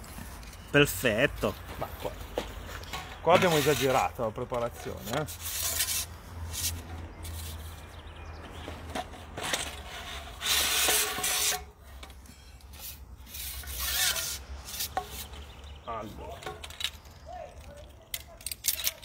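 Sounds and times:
fishing pole sections scraping: 2.6 - 8.0, 9.4 - 11.7, 12.5 - 15.6.

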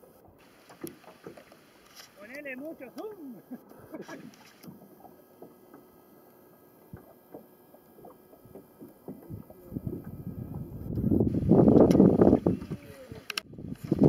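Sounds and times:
water lapping: 0.0 - 14.0
soft knocks on boat: 0.6 - 1.6, 4.2 - 6.0, 6.8 - 10.8
person speaking: 2.1 - 4.4.

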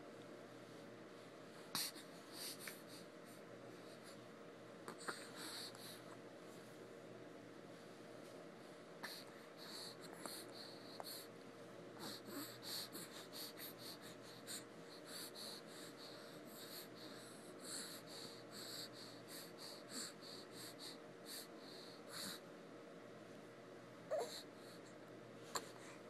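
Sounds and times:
faint steady hum: 0.0 - 26.0
baby breathing: 1.7 - 4.2, 9.0 - 11.3, 12.0 - 22.4.

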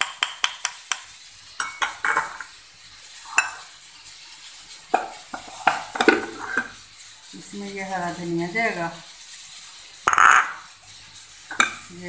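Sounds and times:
clinks and knocks of bowls: 0.0 - 2.5, 4.9 - 6.8, 10.1 - 10.7, 11.5 - 11.9
utensils scraping on counter: 1.6 - 2.5, 3.2 - 3.8, 4.6 - 12.0.

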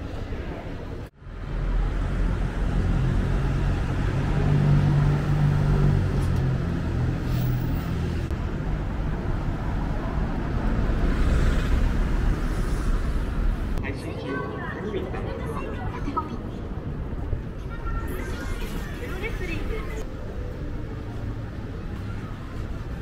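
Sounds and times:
cars driving past: 1.2 - 17.6.

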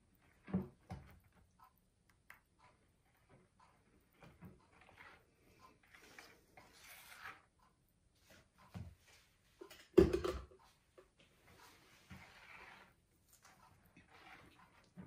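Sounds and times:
spatula scraping batter: 3.1 - 8.5, 11.4 - 15.0
blender clattering on wooden table: 9.9 - 10.6.

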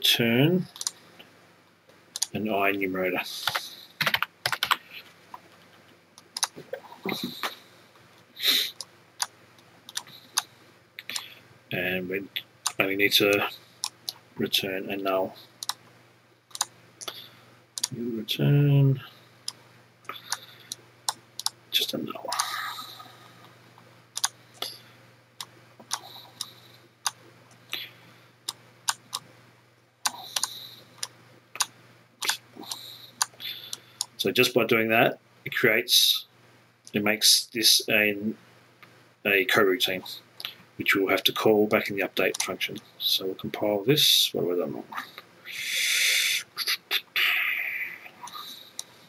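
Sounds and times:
faint low hum: 0.0 - 49.0
computer mouse clicking: 0.7 - 1.0, 3.4 - 6.6, 9.9 - 11.3, 12.7 - 14.2, 15.6 - 15.8, 16.5 - 17.2, 17.8 - 18.0, 19.4 - 21.6, 24.2 - 24.8, 25.4 - 27.2, 28.5 - 29.3, 30.1 - 34.2
mouse and keyboard clicks: 0.7 - 1.0, 16.5 - 17.2, 30.1 - 34.1
person sniffing: 8.4 - 8.8, 45.5 - 48.7.

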